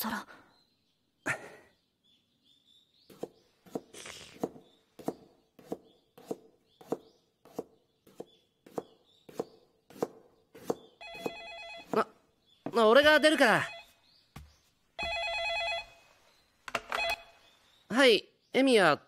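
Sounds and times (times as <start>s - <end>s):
faint high bird chirps: 0.0s - 19.0s
knife chopping on cutting board: 3.1s - 11.3s.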